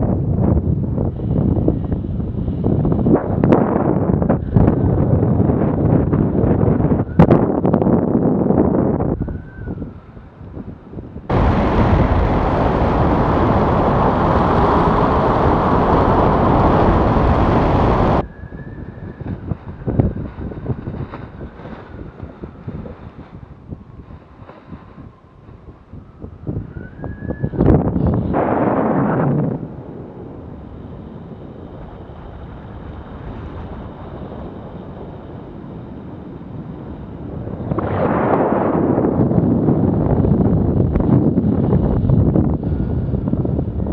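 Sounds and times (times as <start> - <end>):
wind buffeting: 0.0 - 43.9
wind rushing over microphone: 0.0 - 43.9.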